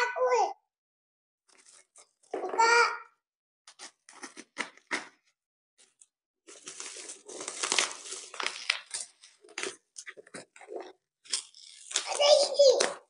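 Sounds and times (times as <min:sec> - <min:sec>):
plastic and bubble wrap crinkling: 0:06.5 - 0:13.0.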